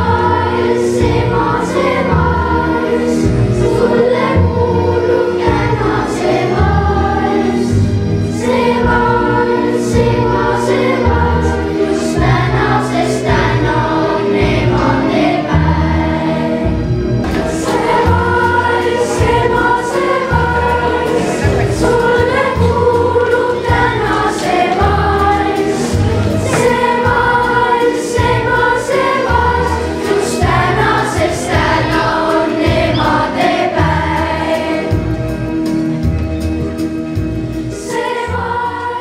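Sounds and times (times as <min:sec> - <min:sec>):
children's choir singing: 0:00.0 - 0:35.8, 0:37.1 - 0:39.0
instrumental accompaniment with bass beat: 0:29.4 - 0:37.8.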